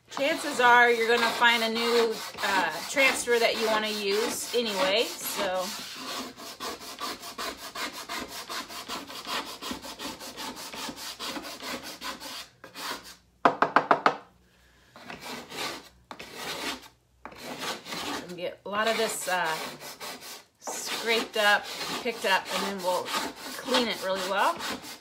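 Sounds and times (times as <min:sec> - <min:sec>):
plastic scraper scraping chalkboard: 0:00.1 - 0:13.2, 0:15.0 - 0:25.0.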